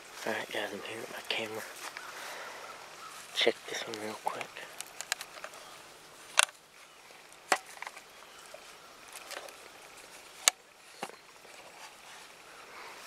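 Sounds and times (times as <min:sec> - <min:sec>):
rustling among branches: 0:00.0 - 0:13.0
plastic camera case clicks: 0:04.4 - 0:05.6, 0:06.4 - 0:06.6.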